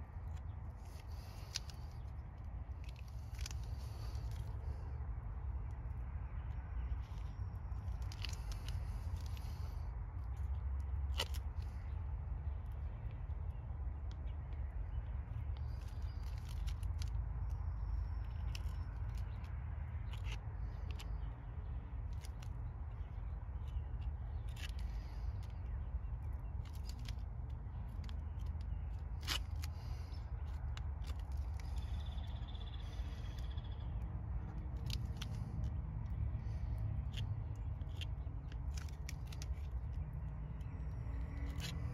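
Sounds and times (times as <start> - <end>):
low outdoor rumble: 0.0 - 41.9
fingers scraping paste on concrete: 34.6 - 41.9.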